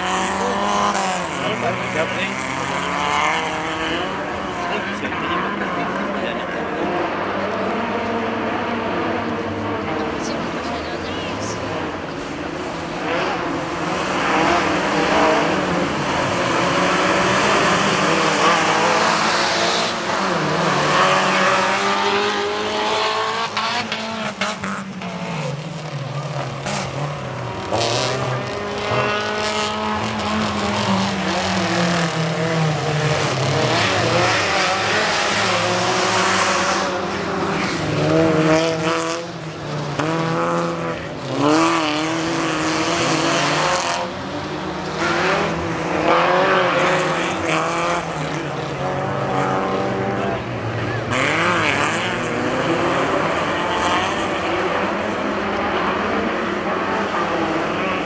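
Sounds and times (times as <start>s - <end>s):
race car engines revving: 0.0s - 58.0s.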